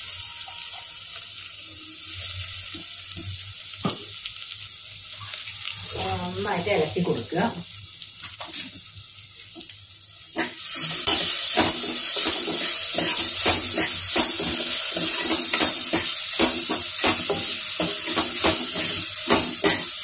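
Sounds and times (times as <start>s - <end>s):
spices sizzling in hot oil: 0.0s - 20.0s
metal spoon scraping pot: 10.4s - 20.0s.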